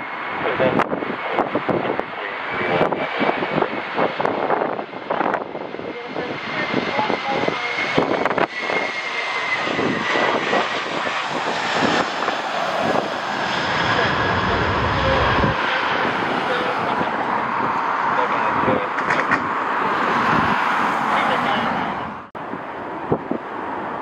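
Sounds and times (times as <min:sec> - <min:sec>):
airliner engines whining: 0:00.0 - 0:24.0
wind gusts buffeting microphone: 0:00.4 - 0:24.0.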